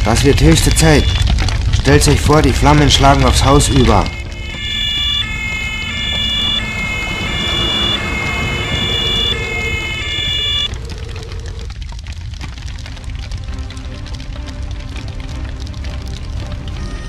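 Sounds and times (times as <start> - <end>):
fire engine two-tone siren: 0.4 - 1.2, 3.5 - 11.7.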